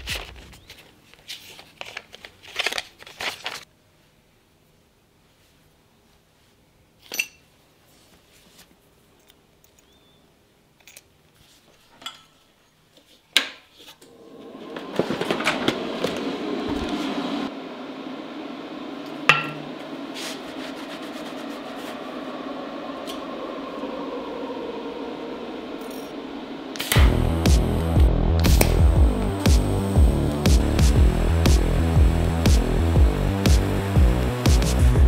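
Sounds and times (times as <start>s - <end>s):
steady fuller sound: 14.1s - 35.0s.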